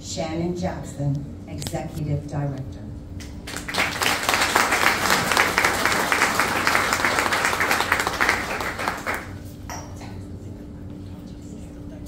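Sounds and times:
audience applauding: 3.4 - 9.4.

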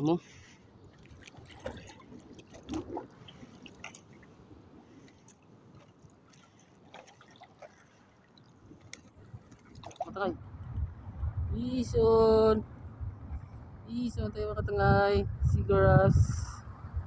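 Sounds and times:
seawater sloshing around wading: 0.2 - 10.4
small clicks and drips: 0.9 - 10.9.

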